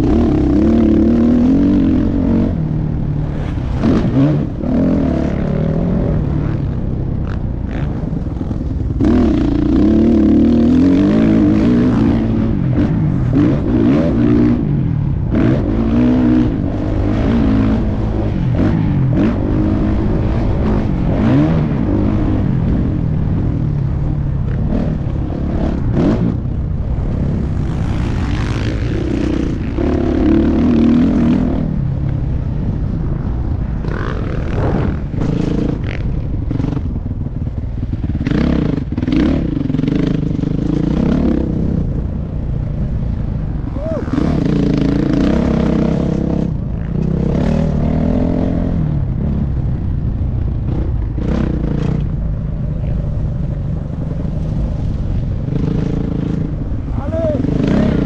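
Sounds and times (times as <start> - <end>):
motocross bike engine revving: 0.0 - 31.8, 37.9 - 42.0, 43.6 - 49.4, 55.5 - 58.0.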